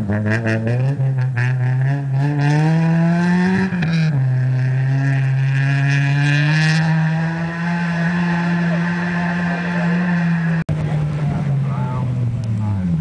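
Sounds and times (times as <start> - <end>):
car engine accelerating hard: 0.0 - 13.0.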